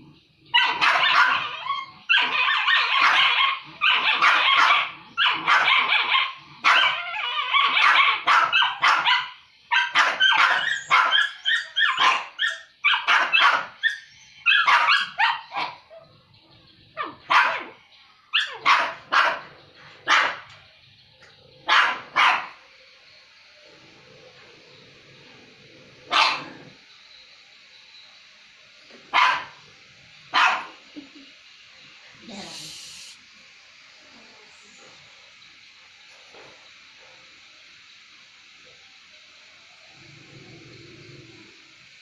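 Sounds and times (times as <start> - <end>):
dogs barking: 0.5 - 16.2, 16.9 - 20.6, 21.6 - 22.6, 26.0 - 26.8, 29.0 - 29.7, 30.3 - 30.9.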